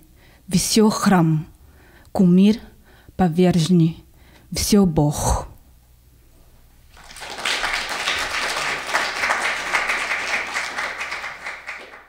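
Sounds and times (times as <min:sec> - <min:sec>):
audience applauding: 0:06.9 - 0:12.0.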